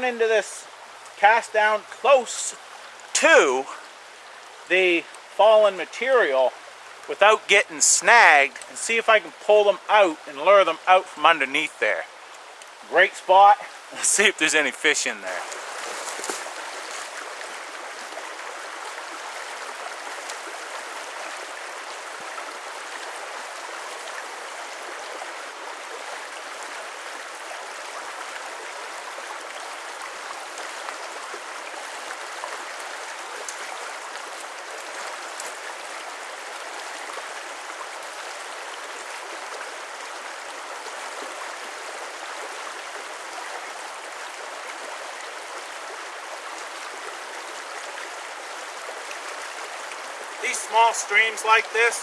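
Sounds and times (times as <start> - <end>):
brook rushing: 12.9 - 22.6, 50.3 - 52.0.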